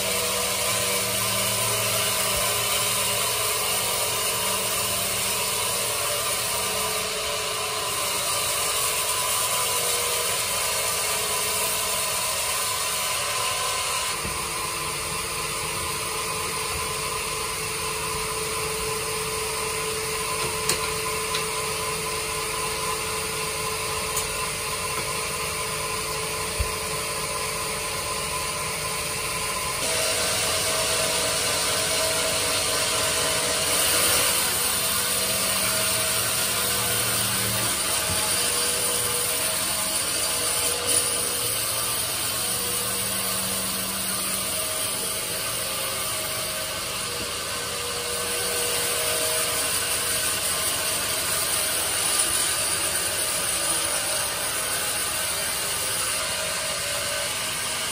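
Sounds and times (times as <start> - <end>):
band saw cutting log: 0.0 - 57.9.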